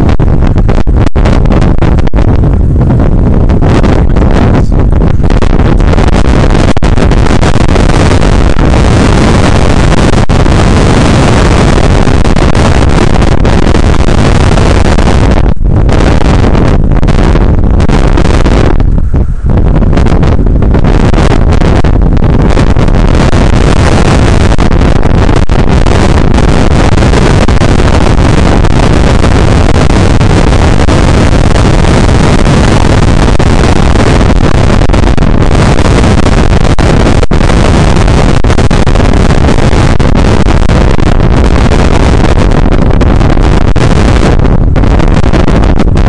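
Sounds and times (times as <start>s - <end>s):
wind buffeting microphone: 0.0s - 46.0s.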